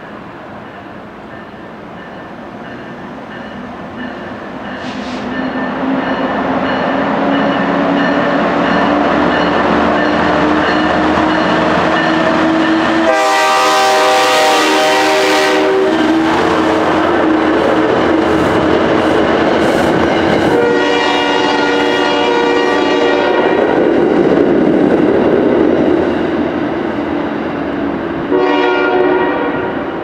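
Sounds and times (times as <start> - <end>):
diesel locomotive engine drone: 0.0 - 30.0
locomotive air horn: 4.8 - 5.3, 13.0 - 16.1, 20.5 - 23.6, 28.3 - 29.8.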